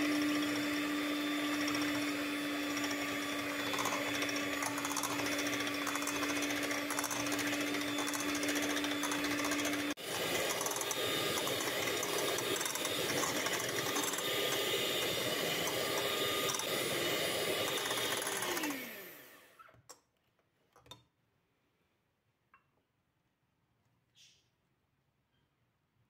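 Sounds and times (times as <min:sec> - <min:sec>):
electric hand mixer whirring: 0:00.0 - 0:19.6.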